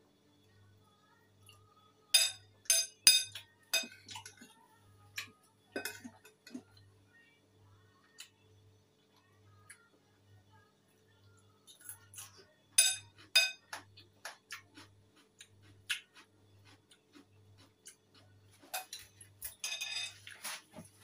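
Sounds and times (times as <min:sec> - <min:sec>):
metal spoon clinking on ceramic bowl: 0:02.2 - 0:04.4, 0:05.8 - 0:06.6, 0:12.8 - 0:13.8, 0:18.8 - 0:20.2.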